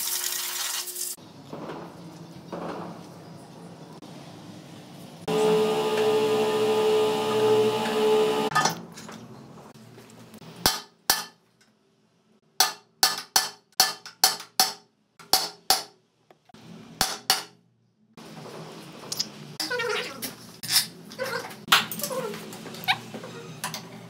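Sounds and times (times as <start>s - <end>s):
hammer striking metal: 10.6s - 11.4s, 12.6s - 16.0s.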